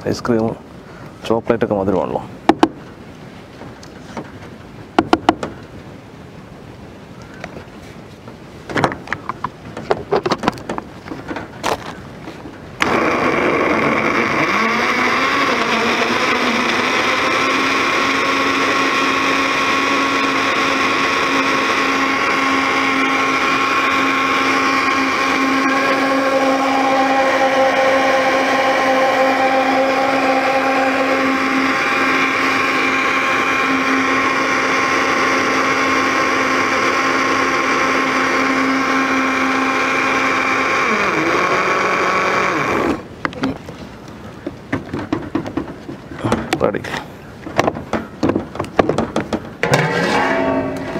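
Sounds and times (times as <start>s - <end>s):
plastic knocks and clicks: 5.0s - 5.6s, 47.5s - 49.5s
electric blender motor running: 12.8s - 43.0s.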